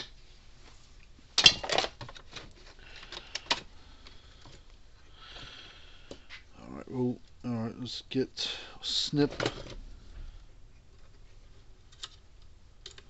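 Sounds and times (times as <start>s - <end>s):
soft rustle: 0.2s - 1.3s
clicks and rattles of wires: 1.4s - 4.7s.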